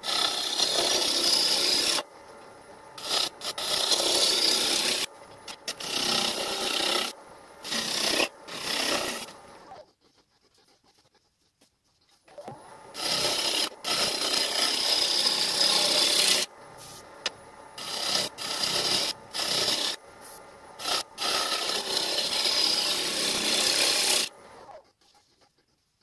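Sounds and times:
gouge scraping wood on a lathe: 0.0s - 2.0s, 3.0s - 10.2s, 12.9s - 16.5s, 17.8s - 20.0s, 20.8s - 25.6s.

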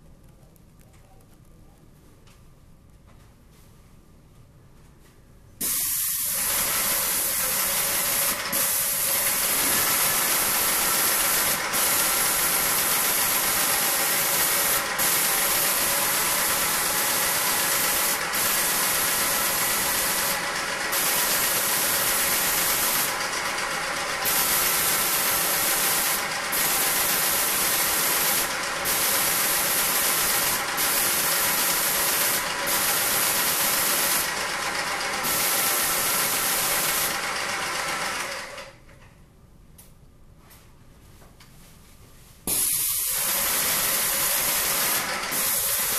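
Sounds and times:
paint sprayer hissing: 5.6s - 38.6s, 42.4s - 45.9s
machine hum: 6.2s - 39.1s.

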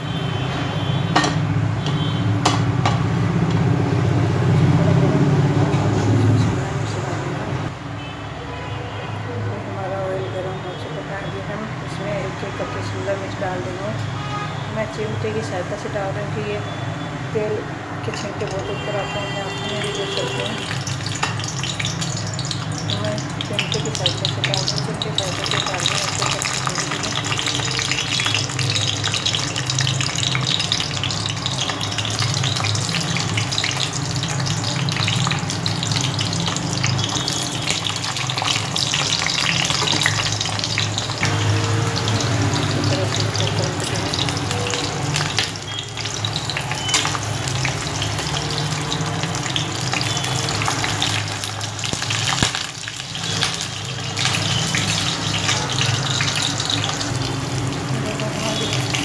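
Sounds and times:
peppers sizzling in hot oil: 18.1s - 59.0s.

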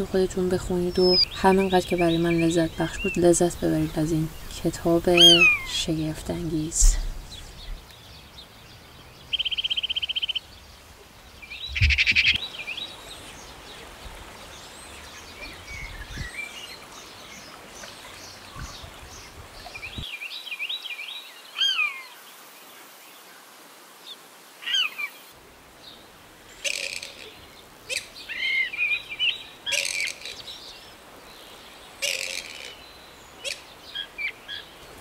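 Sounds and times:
birds chirping and whistling: 0.9s - 5.9s, 11.6s - 12.5s.

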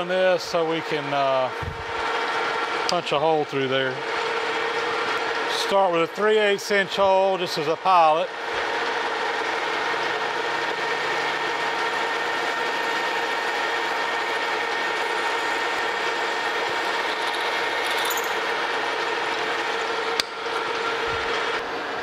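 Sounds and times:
metal lathe humming: 0.0s - 22.0s
drill cutting metal: 9.0s - 21.8s.

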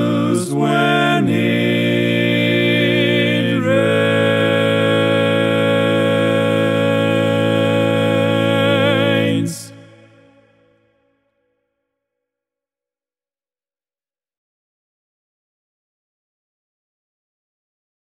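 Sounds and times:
men singing a cappella chord: 0.0s - 10.7s.

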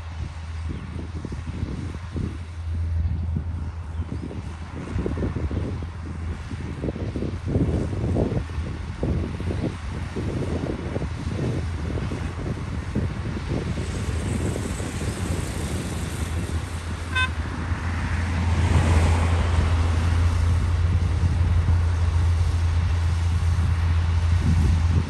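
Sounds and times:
bulldozer diesel engine under load: 0.0s - 25.0s
high beep: 17.1s - 17.4s.

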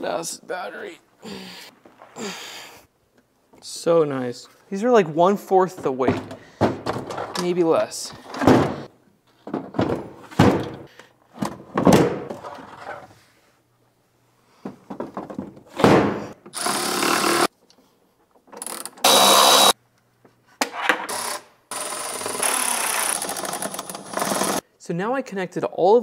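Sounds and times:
cordless power tool running: 16.6s - 17.5s, 19.0s - 19.7s, 21.7s - 24.6s.

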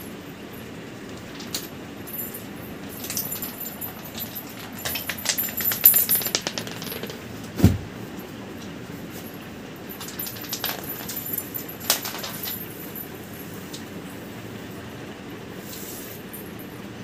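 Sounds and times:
small bell jingling: 1.4s - 7.2s, 9.8s - 13.4s
dull thump: 7.6s - 8.0s.

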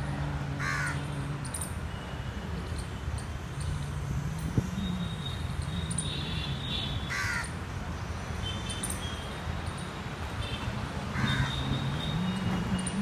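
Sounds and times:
crows cawing: 0.6s - 1.0s, 7.1s - 7.6s, 11.1s - 11.6s.

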